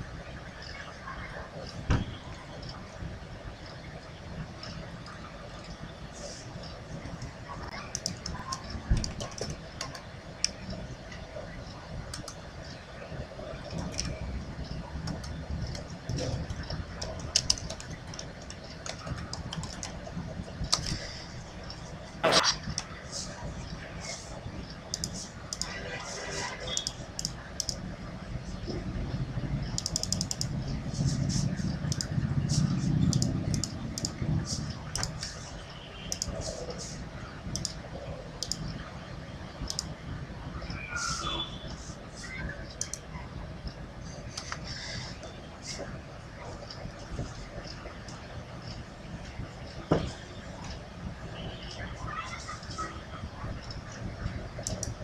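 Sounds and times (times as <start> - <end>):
light clicks and taps: 4.3 - 12.8, 24.6 - 25.8, 29.6 - 35.5, 36.1 - 37.8, 38.4 - 38.9, 39.6 - 40.0, 53.5 - 55.0
sharp clicks: 15.0 - 20.0, 24.8 - 25.7, 26.7 - 27.8, 29.7 - 30.6, 31.4 - 35.5, 36.1 - 36.8, 37.5 - 37.8, 38.4 - 38.7, 39.6 - 40.0, 42.7 - 43.1, 54.6 - 55.0
low background rumble: 26.7 - 55.0.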